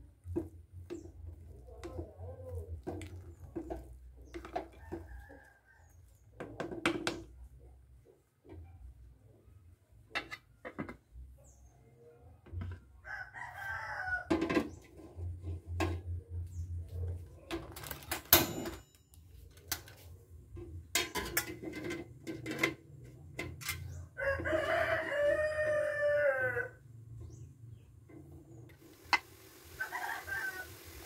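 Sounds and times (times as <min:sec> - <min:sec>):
rooster crowing: 0:13.0 - 0:14.4, 0:24.2 - 0:26.8, 0:29.8 - 0:31.0
metal pots clattering: 0:17.6 - 0:19.0, 0:20.9 - 0:24.0.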